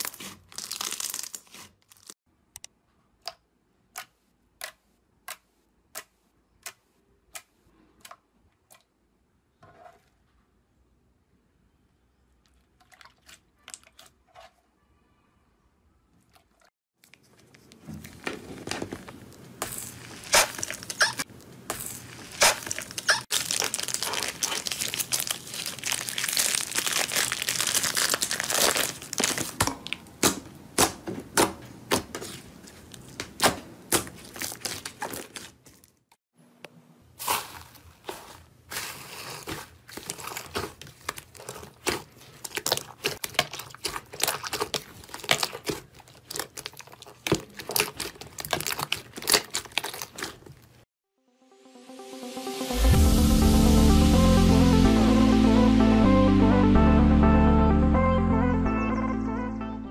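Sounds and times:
plastic bag crinkling: 0.0 - 2.2, 17.0 - 30.1, 34.0 - 36.1, 37.2 - 50.8.

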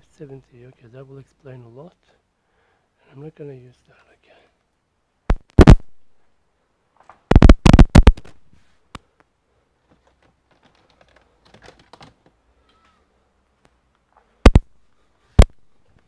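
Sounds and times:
hard objects clicking and knocking: 9.9 - 12.9.

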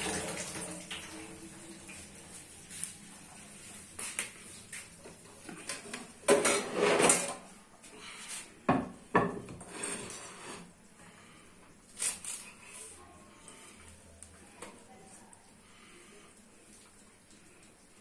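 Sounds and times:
kitchen utensils and dishes clicking: 5.6 - 7.4
dishes clattering: 5.6 - 7.5.

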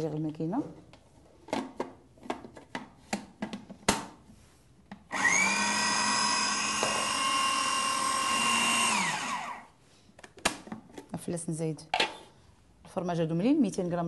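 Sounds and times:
food processor motor whine: 5.1 - 9.7.

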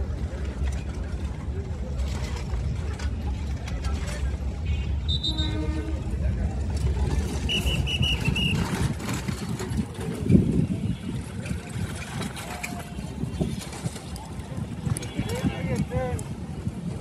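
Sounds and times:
train rumbling: 0.0 - 17.0
train horn toot: 4.7 - 6.2.

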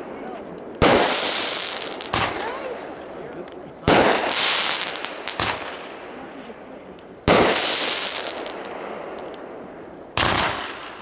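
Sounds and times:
faint firework crackles: 0.0 - 11.0
firework bang: 0.8 - 2.9, 3.8 - 6.0, 7.2 - 9.0, 10.2 - 11.0.

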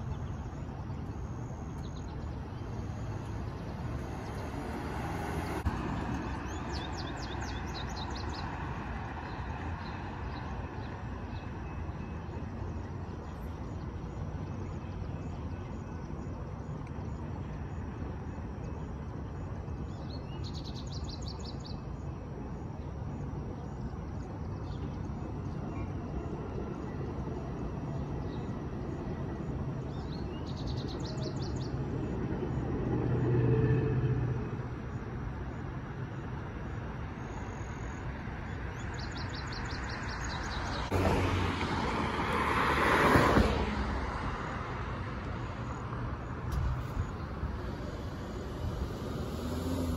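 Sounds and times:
traffic hum: 0.0 - 49.9
low vehicle engine hum: 43.4 - 49.9.

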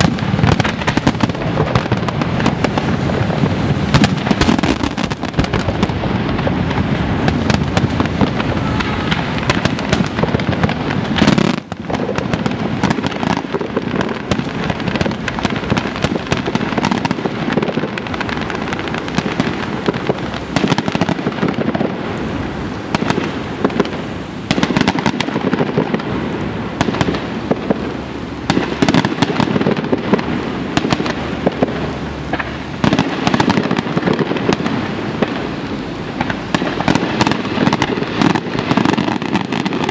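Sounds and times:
fireworks bursts and crackling: 0.0 - 39.9.

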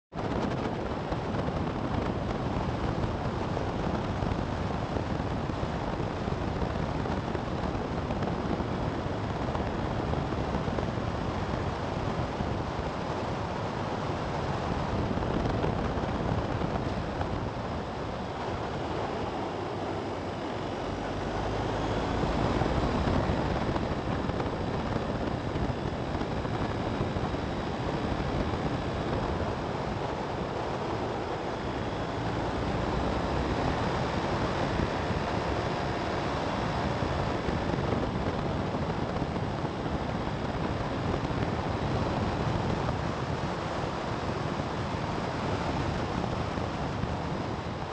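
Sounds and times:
road and tyre noise: 0.1 - 47.9
wind noise on microphone: 0.1 - 47.9.

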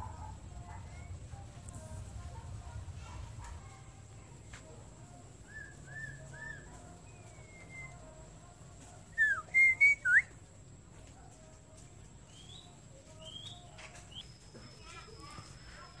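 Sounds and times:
bird whistling song: 5.4 - 8.1, 9.1 - 10.4, 12.3 - 16.0.

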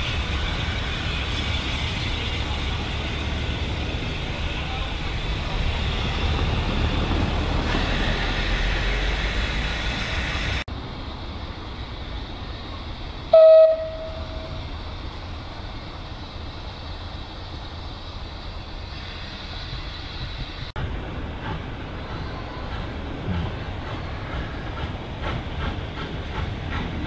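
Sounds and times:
steady train sound: 0.0 - 27.0
steam locomotive rumbling: 0.0 - 27.0
train horn toot: 13.3 - 14.7.

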